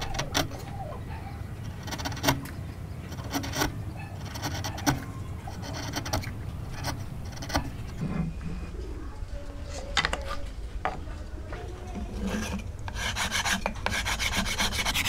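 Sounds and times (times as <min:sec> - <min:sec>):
chisel scraping wood: 0:01.6 - 0:08.5, 0:11.9 - 0:15.0.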